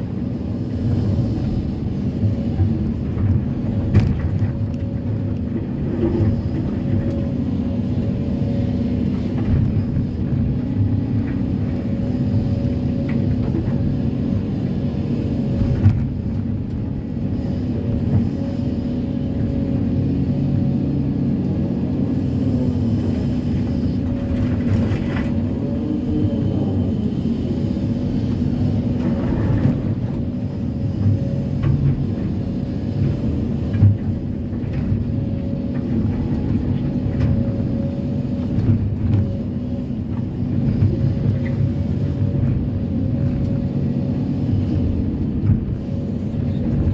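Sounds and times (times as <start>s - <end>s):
excavator diesel engine running: 0.0s - 46.9s.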